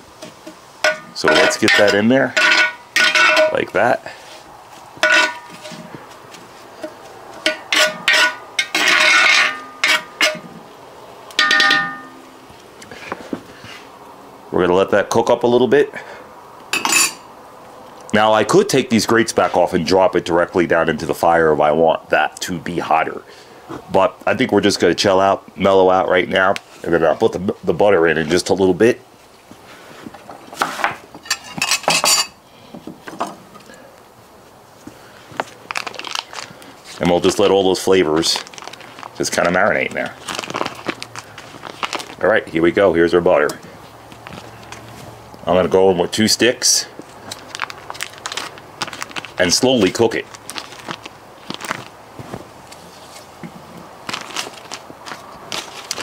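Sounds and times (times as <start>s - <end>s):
metal cookware clattering: 0.8s - 3.7s, 5.0s - 5.8s, 7.4s - 10.5s, 11.4s - 12.3s, 16.8s - 17.2s, 31.2s - 32.4s
metal spoon clinking in pot: 0.9s - 3.6s, 5.0s - 5.6s, 7.4s - 10.5s, 11.4s - 12.2s, 16.8s - 17.2s
spoon scraping pot: 5.0s - 5.9s, 6.8s - 10.6s.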